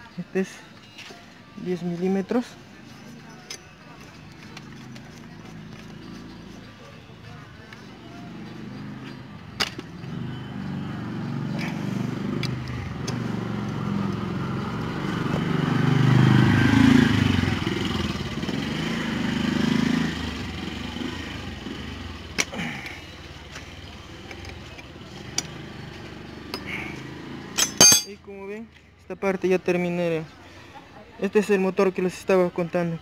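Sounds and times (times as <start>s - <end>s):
motor vehicle passing: 4.4s - 28.1s.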